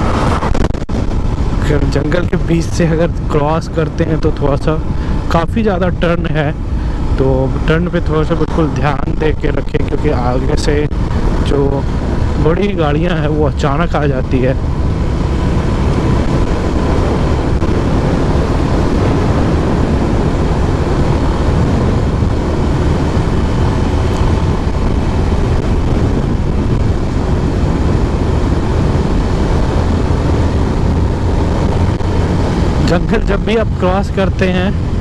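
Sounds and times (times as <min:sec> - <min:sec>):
wind rushing over microphone: 0:00.0 - 0:35.0
motorcycle engine running: 0:10.8 - 0:35.0.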